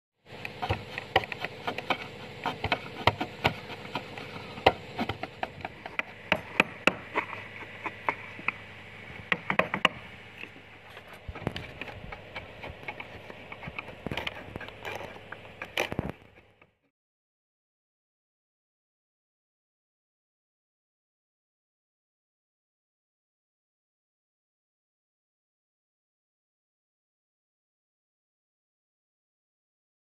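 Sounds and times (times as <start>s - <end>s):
background drone: 0.2s - 16.7s
chisel knocking into wood: 0.5s - 10.1s.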